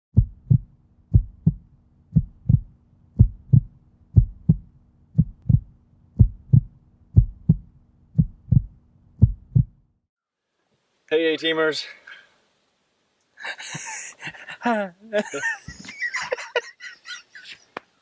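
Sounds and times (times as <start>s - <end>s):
heartbeat thumps: 0.1s - 9.9s
faint steady hum: 0.2s - 17.2s.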